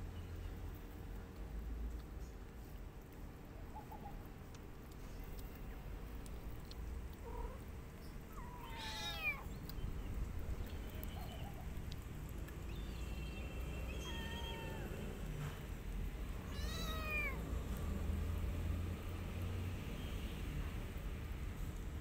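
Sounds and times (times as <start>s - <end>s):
kitten meowing: 8.3s - 9.5s, 14.0s - 15.0s, 16.5s - 17.4s.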